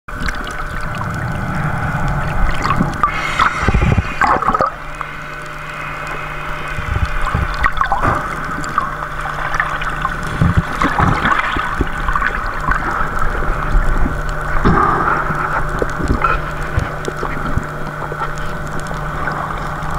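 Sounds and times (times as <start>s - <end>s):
low hum: 0.1s - 14.5s, 16.5s - 19.9s
underwater gurgling and sloshing: 0.1s - 19.9s
bubbles bursting: 0.4s - 10.0s.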